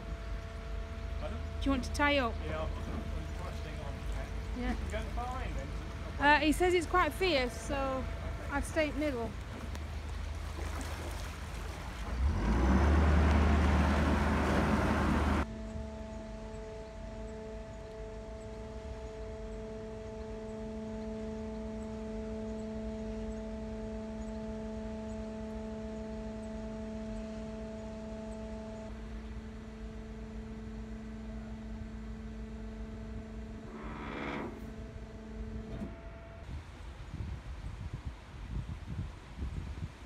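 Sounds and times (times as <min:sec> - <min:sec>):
sluice machinery humming: 0:00.0 - 0:36.5
rattling noise: 0:33.4 - 0:36.5.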